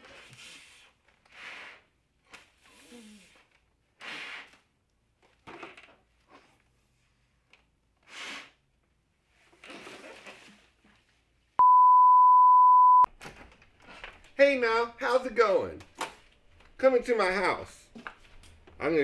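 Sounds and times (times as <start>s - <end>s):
steady flatline beep: 11.6s - 13.1s.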